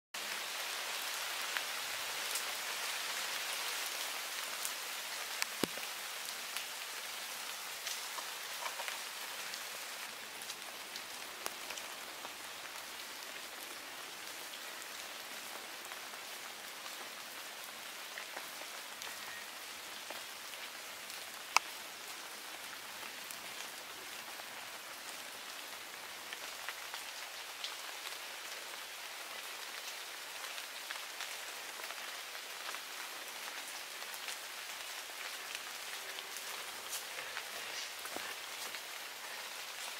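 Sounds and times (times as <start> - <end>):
rain hissing: 0.2 - 19.4, 30.2 - 39.9
raindrop ticks: 5.3 - 5.9, 7.8 - 9.6, 21.5 - 21.8.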